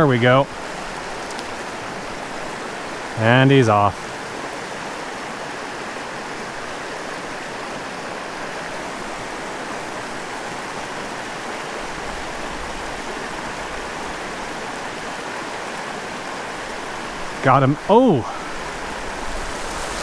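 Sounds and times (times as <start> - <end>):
stream rushing over stones: 0.0 - 20.0.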